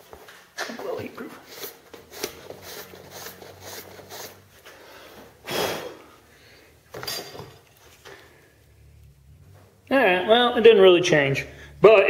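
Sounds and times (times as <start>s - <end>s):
brush scrubbing steel: 1.4s - 4.6s.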